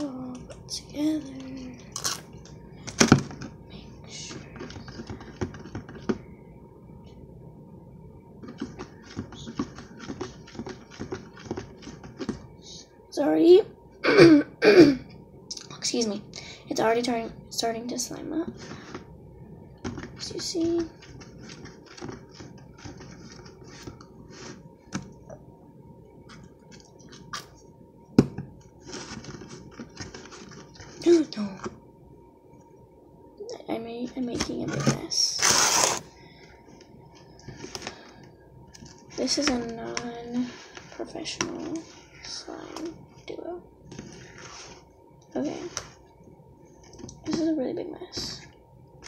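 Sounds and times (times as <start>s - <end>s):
spoon stirring slime in bowl: 8.4s - 12.5s.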